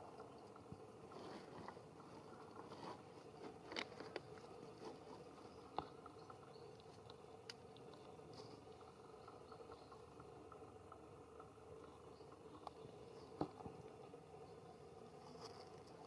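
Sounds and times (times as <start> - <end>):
soft clicks and rustles: 0.0 - 9.0, 15.2 - 16.0
low steady hum: 0.0 - 16.0.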